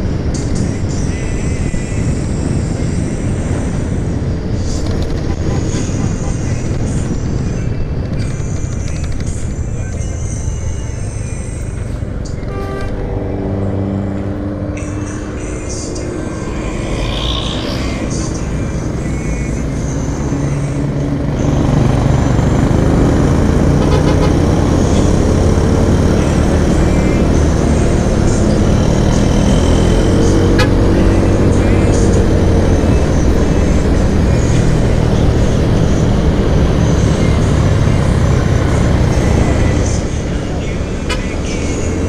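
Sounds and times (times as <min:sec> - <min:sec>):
surrounding traffic: 0:00.0 - 0:42.0
scooter engine: 0:14.1 - 0:42.0.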